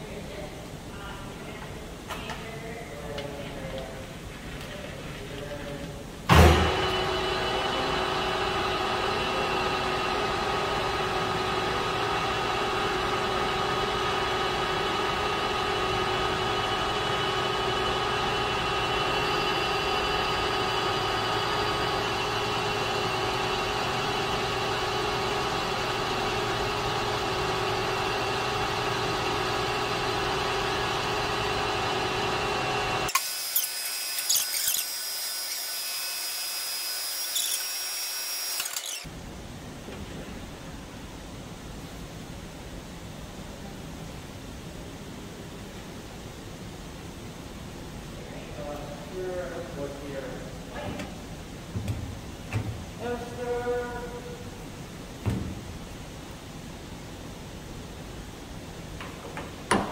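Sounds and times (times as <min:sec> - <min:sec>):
metal lathe humming: 0:06.5 - 0:39.1
lathe spindle turning: 0:13.4 - 0:39.1.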